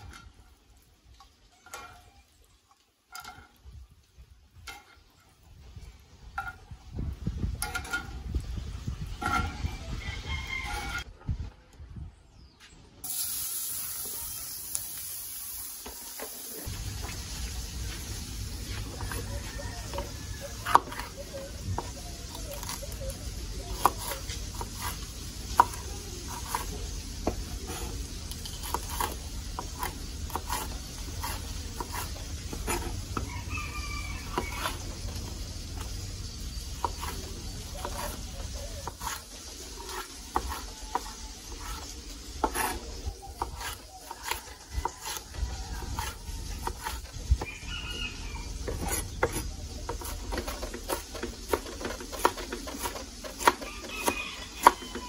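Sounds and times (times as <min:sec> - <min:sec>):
knife chopping on wooden board: 0:20.6 - 0:21.1, 0:23.7 - 0:27.9, 0:28.5 - 0:33.3, 0:36.8 - 0:37.2, 0:37.8 - 0:38.2, 0:38.8 - 0:39.2, 0:39.8 - 0:41.8, 0:42.4 - 0:42.8, 0:43.4 - 0:45.2, 0:45.8 - 0:47.1, 0:48.6 - 0:53.7, 0:54.4 - 0:54.9.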